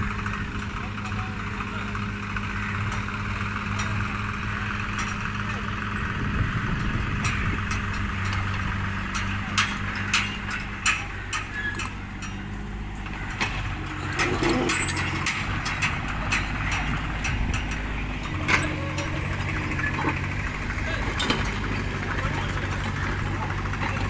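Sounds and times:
excavator diesel engine running: 0.0s - 24.0s
sharp clicks and knocks: 6.8s - 24.0s.

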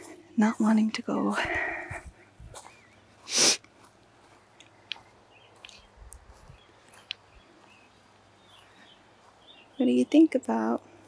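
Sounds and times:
breathy exhale close to microphone: 3.3s - 3.6s.

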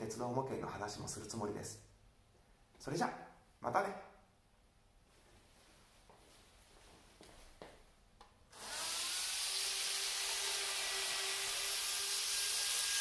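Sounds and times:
model train motor whining: 8.6s - 13.0s.

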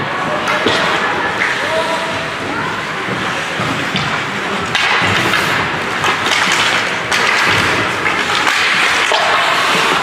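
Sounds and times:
hockey sticks and puck knocking: 3.1s - 10.0s
skates scraping on ice: 3.1s - 10.0s.

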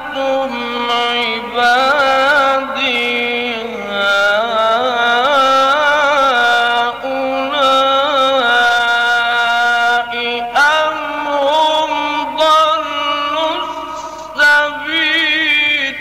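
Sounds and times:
man reciting melodically: 0.0s - 16.0s.

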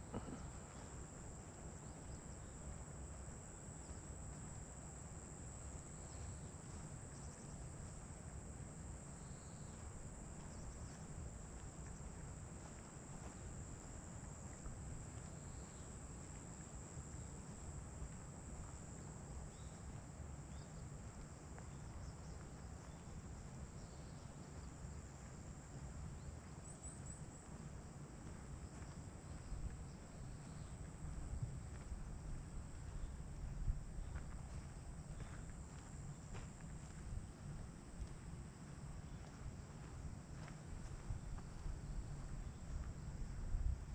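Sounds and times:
insects trilling: 0.0s - 8.0s, 8.9s - 23.1s
faint insect chirps: 0.0s - 43.9s
steady low rumble: 25.2s - 43.9s.

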